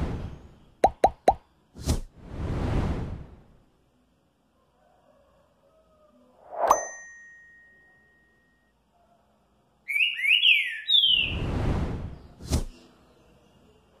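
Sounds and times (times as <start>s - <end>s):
bird whistling song: 9.9s - 11.5s.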